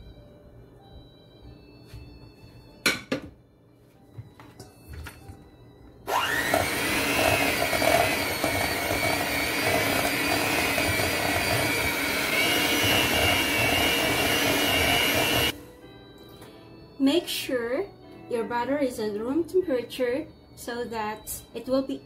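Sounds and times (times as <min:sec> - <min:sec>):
beaters in steel bowl: 0:06.1 - 0:15.5
electric mixer motor running: 0:06.1 - 0:15.6.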